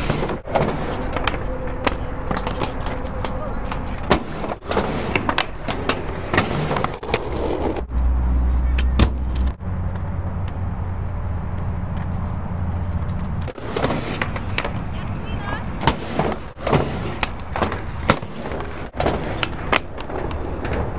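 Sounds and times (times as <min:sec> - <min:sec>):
skateboard clacks and knocks: 0:00.0 - 0:07.9, 0:13.0 - 0:20.9
skateboard wheels rolling: 0:00.0 - 0:20.9.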